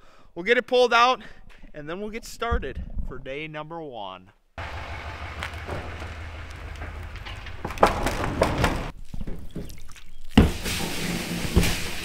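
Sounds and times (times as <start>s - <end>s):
vehicle engine humming: 4.6s - 8.9s
loud knocks and thunks: 4.6s - 9.7s.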